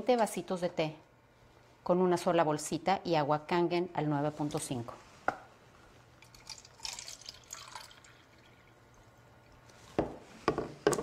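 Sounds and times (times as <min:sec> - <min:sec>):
water trickling into plastic cup: 0:06.2 - 0:09.7.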